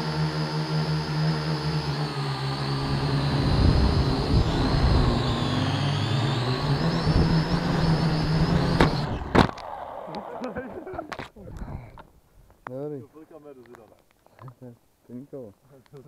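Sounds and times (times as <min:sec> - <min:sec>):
drone motors whining: 0:00.0 - 0:10.9.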